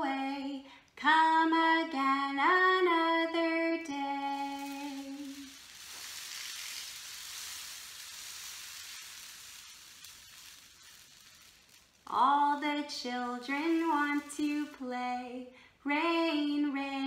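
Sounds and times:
rain stick hissing: 0:04.0 - 0:15.0.

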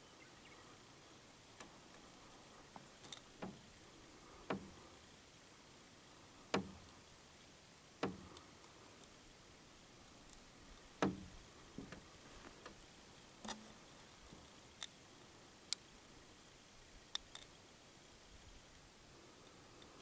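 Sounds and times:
faint steady hiss: 0:00.0 - 0:20.0.

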